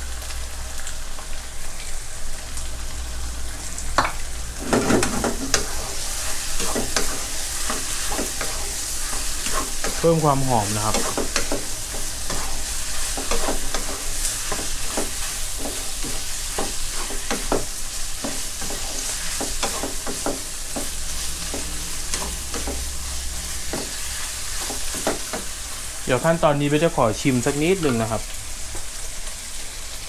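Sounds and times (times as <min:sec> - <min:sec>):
meat and onions sizzling in a wok: 0:00.0 - 0:30.0
wooden spatula scraping a pan: 0:04.6 - 0:25.5.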